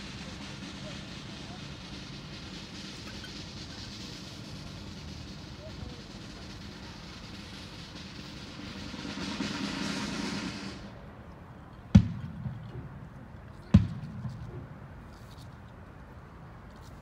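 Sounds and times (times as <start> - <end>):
rushing noise: 0.0 - 11.2.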